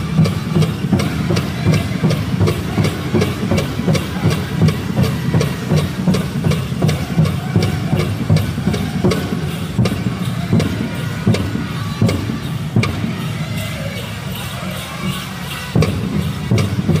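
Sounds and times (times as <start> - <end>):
fast beat on large drum: 0.0 - 13.2
singers' voices: 0.0 - 17.0.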